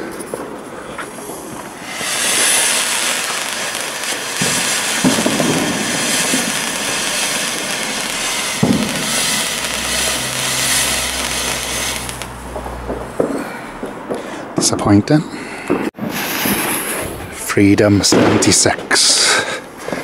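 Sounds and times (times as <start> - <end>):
firework fountain hissing: 0.0 - 13.5, 16.0 - 17.2
firework pops: 0.1 - 14.2, 15.7 - 16.9.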